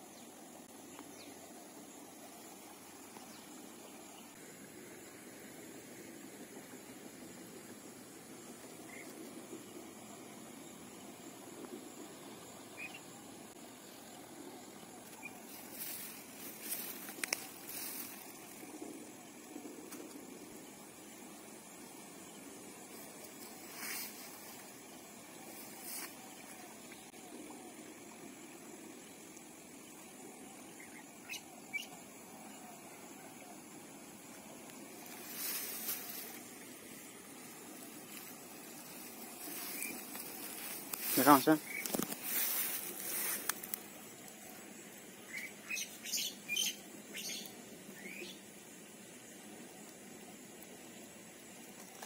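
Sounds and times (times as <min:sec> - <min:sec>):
steady hiss: 0:00.0 - 0:52.0
faint bird chirps: 0:12.5 - 0:18.3, 0:30.4 - 0:33.6, 0:45.2 - 0:48.4
rustling: 0:35.0 - 0:36.6, 0:37.8 - 0:43.8.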